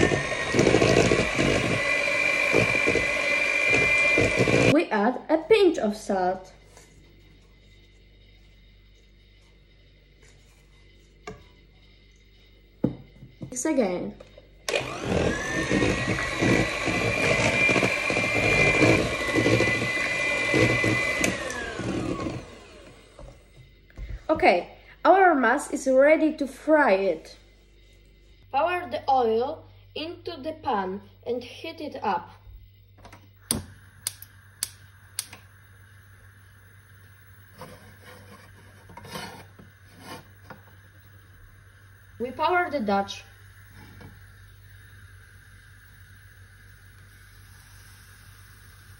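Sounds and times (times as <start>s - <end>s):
electric hand mixer whine: 0.0s - 4.8s, 14.6s - 24.2s, 33.4s - 48.9s
soft gas rushing: 5.8s - 48.9s
gas hob igniter clicking: 33.0s - 35.6s.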